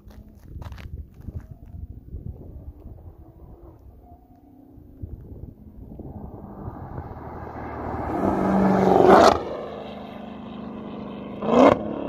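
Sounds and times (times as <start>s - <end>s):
car exhaust roaring past: 2.3s - 12.0s.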